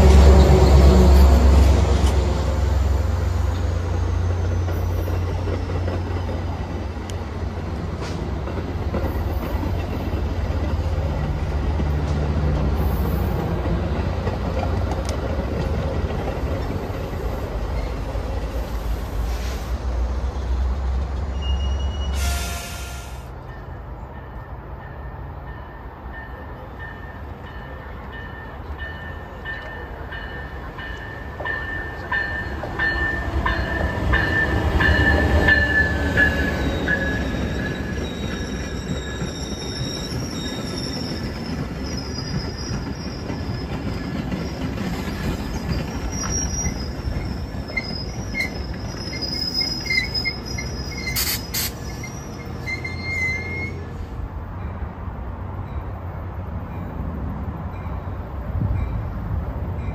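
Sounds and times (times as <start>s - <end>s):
train rumbling: 0.0s - 59.9s
train wheels squealing: 17.6s - 19.7s, 21.2s - 23.3s, 30.9s - 54.1s.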